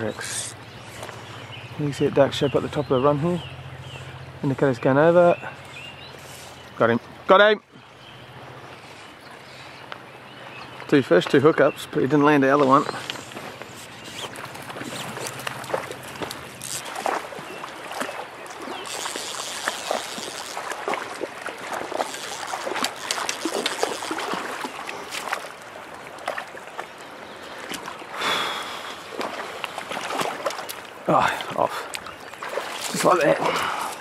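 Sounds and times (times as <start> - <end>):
stream water trickling: 0.0 - 34.0
fish splashing: 12.9 - 34.0.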